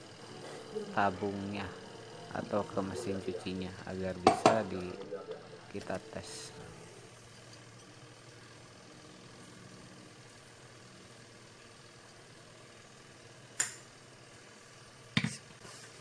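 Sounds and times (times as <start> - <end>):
metal knocks on hard floor: 4.2 - 4.6.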